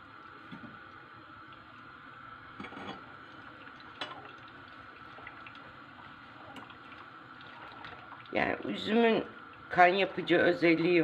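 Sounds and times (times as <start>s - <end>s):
liquid bubbling and trickling: 0.0s - 9.9s.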